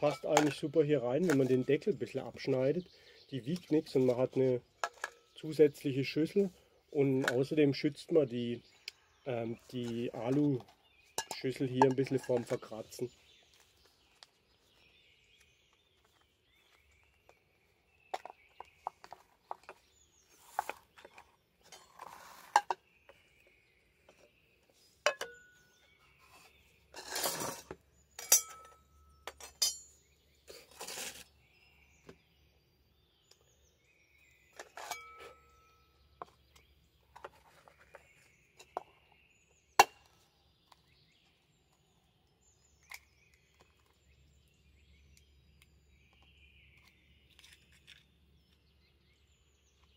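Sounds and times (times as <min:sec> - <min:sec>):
metallic ring of pots: 0:00.0 - 0:00.7, 0:11.2 - 0:12.9, 0:25.0 - 0:25.6, 0:27.0 - 0:30.0, 0:34.6 - 0:35.8
cooking gear clinking and knocking: 0:00.0 - 0:01.9, 0:09.8 - 0:12.9, 0:25.0 - 0:25.6, 0:27.0 - 0:30.0
birds chirping: 0:00.0 - 0:49.9.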